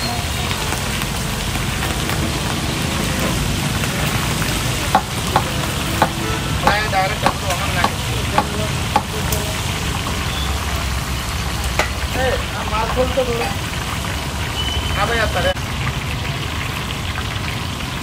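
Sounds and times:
chillies sizzling in hot oil: 0:00.0 - 0:18.0
metal spoon knocking in pan: 0:04.9 - 0:09.4, 0:11.8 - 0:12.2, 0:12.8 - 0:13.7.

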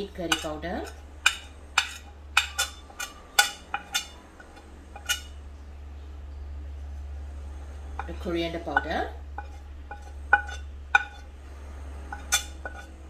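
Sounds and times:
steady low hum: 0:00.0 - 0:13.0
metal spoon clinking on plate: 0:00.2 - 0:05.4, 0:12.1 - 0:13.0.

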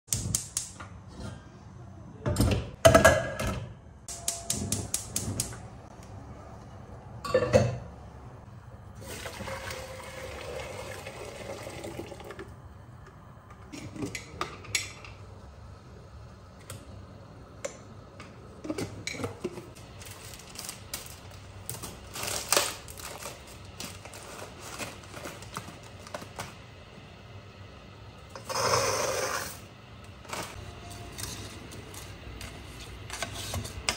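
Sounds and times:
gas hob hissing: 0:20.0 - 0:33.9.

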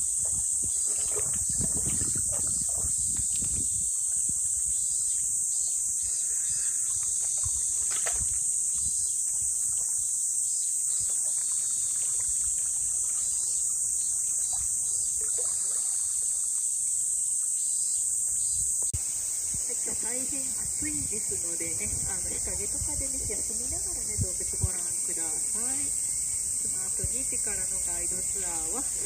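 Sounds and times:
water sloshing: 0:00.0 - 0:05.3, 0:06.7 - 0:16.6
cicadas buzzing: 0:00.0 - 0:29.0.

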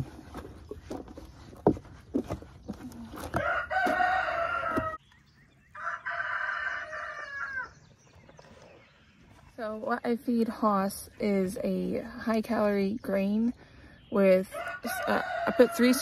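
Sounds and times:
rooster crowing: 0:03.4 - 0:05.0, 0:05.8 - 0:07.8, 0:14.6 - 0:16.0.

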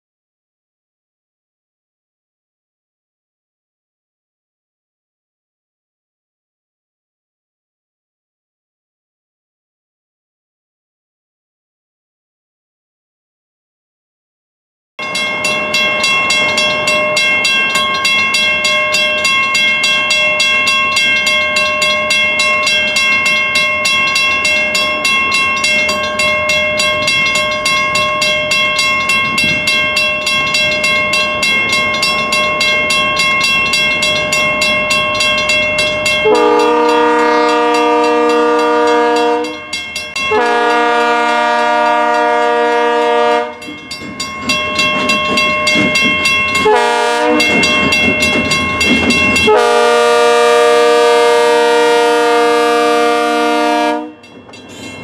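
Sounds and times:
bell ringing rapidly: 0:15.0 - 0:37.0, 0:37.6 - 0:40.5, 0:43.5 - 0:49.6, 0:54.2 - 0:55.0
train horn blasts: 0:36.2 - 0:39.6, 0:40.3 - 0:43.6, 0:46.6 - 0:47.6, 0:49.4 - 0:54.3.

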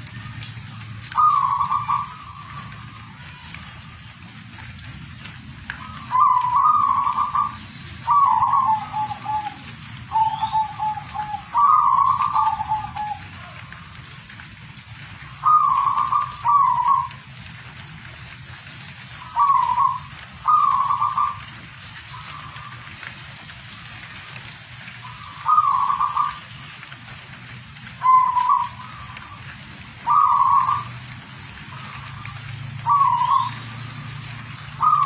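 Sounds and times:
dove cooing: 0:01.0 - 0:03.8, 0:05.7 - 0:14.1, 0:15.0 - 0:17.3, 0:19.1 - 0:23.0, 0:25.0 - 0:26.8, 0:27.9 - 0:31.1, 0:31.7 - 0:33.8, 0:34.4 - 0:35.0.

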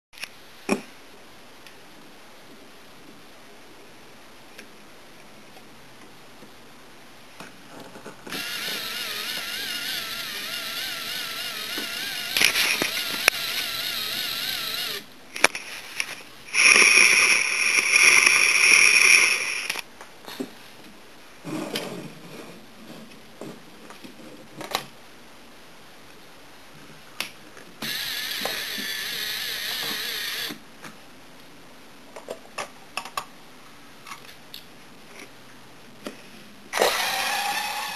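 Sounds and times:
electric motor whining through gears: 0:08.3 - 0:15.0, 0:16.5 - 0:19.8, 0:27.8 - 0:30.6, 0:36.8 - 0:37.9.

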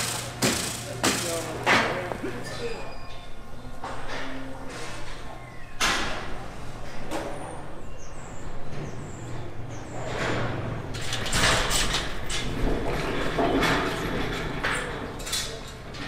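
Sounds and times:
metal gates rattling and clanging: 0:10.3 - 0:16.0.

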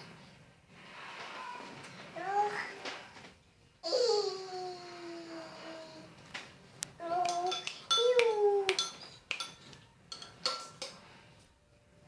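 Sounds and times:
metal spoon clinking on bowl: 0:07.2 - 0:11.1.

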